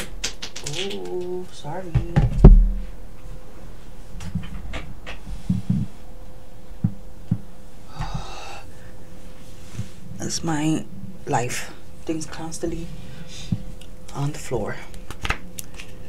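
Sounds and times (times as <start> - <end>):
heavy thump: 2.0 - 3.0
heavy breath: 7.9 - 9.1.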